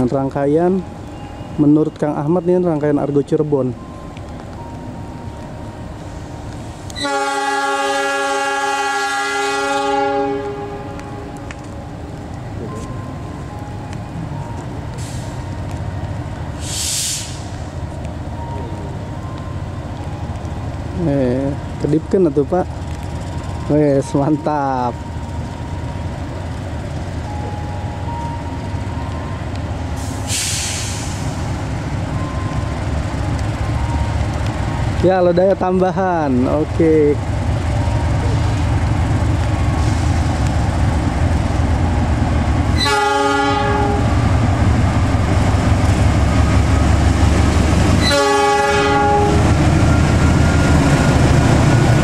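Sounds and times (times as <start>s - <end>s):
low rumble of moving train: 0.0s - 52.0s
locomotive air horn blast: 7.0s - 11.3s, 30.0s - 31.3s, 42.8s - 44.2s, 48.0s - 49.6s
air hiss burst: 16.6s - 17.6s, 30.0s - 31.5s.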